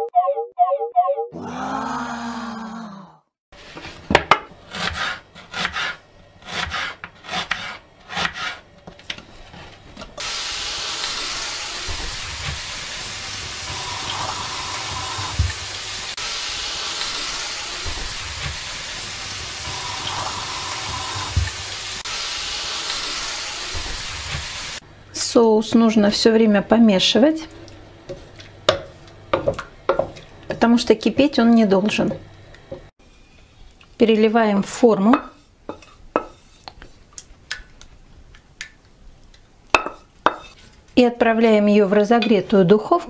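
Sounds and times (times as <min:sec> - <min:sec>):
onions sizzling in a pan: 0:10.2 - 0:24.8
wooden spatula knocking pan: 0:28.7 - 0:30.7.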